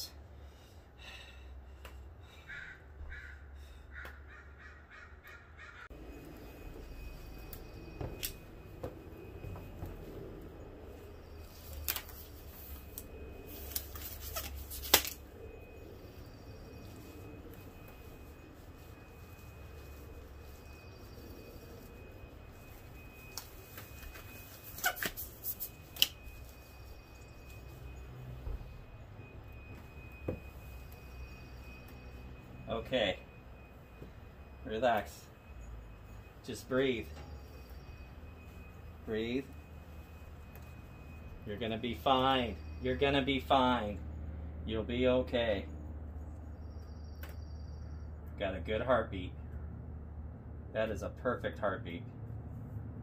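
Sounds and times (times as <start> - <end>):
crow cawing: 2.3 - 5.9
disposable gloves snapping: 12.9 - 15.2.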